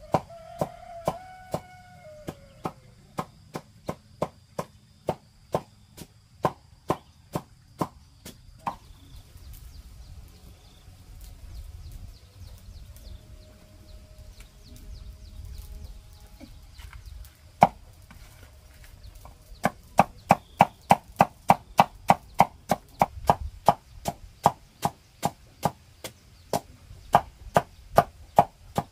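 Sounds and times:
chopping blows: 0.0 - 9.0, 17.6 - 17.9, 19.6 - 28.9.

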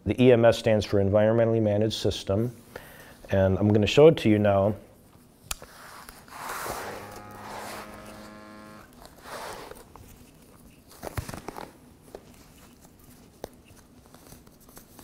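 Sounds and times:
rubber sleeve rubbing and peeling: 5.6 - 15.0
small electric motor buzzing: 6.6 - 9.0.

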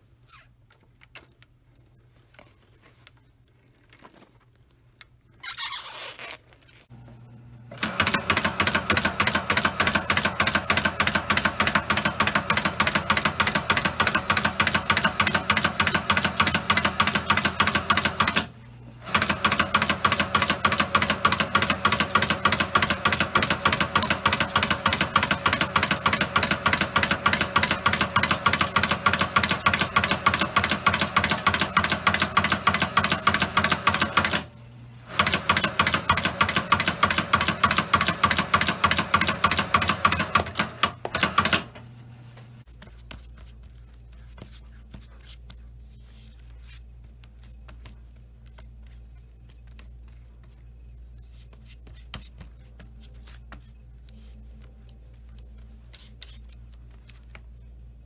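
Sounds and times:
stitching machine running: 7.7 - 41.8.

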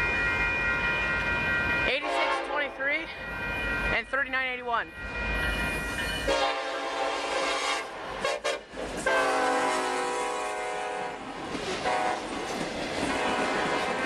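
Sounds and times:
locomotive air horn blasts: 2.0 - 2.7, 6.3 - 11.2, 11.8 - 12.2, 13.1 - 14.0
train wheels clattering: 11.4 - 14.0.

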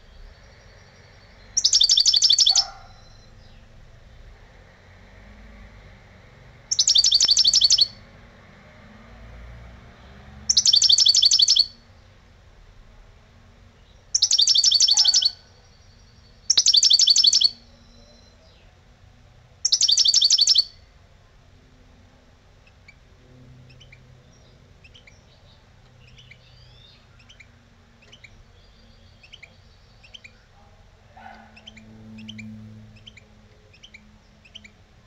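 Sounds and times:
goldfinch singing: 0.0 - 3.8, 6.7 - 8.0, 10.5 - 11.8, 13.8 - 18.7, 19.6 - 20.8, 23.7 - 30.6, 31.2 - 34.8.

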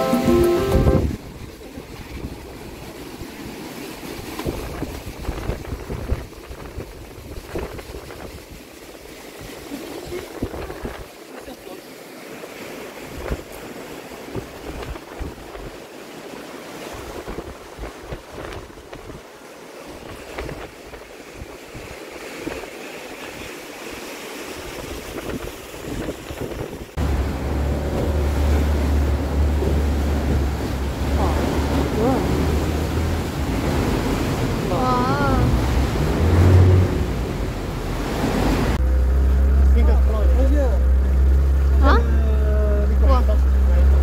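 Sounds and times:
wind noise: 0.0 - 2.4, 4.4 - 8.6, 24.6 - 38.8
motorboat engine rumble: 0.0 - 8.5, 23.9 - 44.0
rushing water: 0.0 - 44.0.

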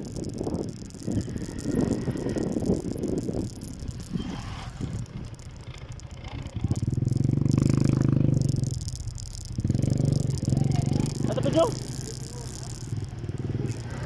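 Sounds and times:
motorcycle exhaust pulsing: 0.0 - 14.0
rattling noise: 0.0 - 14.0.

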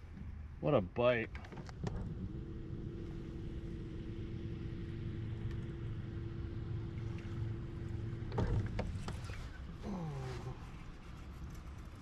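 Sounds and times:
electric trolling motor humming: 2.0 - 9.6.

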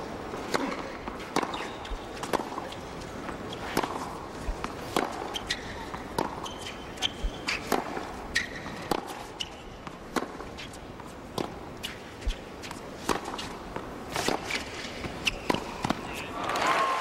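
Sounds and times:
racquets hitting tennis ball: 0.3 - 16.6
tennis ball bouncing: 0.4 - 16.2
sneaker squeaks: 1.4 - 3.8, 4.9 - 9.8, 11.8 - 16.3.

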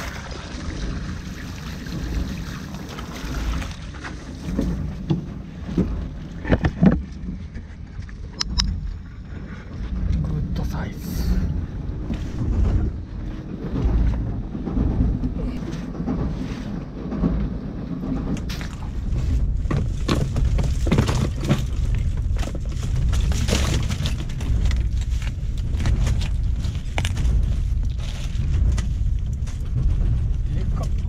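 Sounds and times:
boat engine rumble: 0.0 - 31.0
clicks and rattles of shellfish: 18.1 - 31.0.

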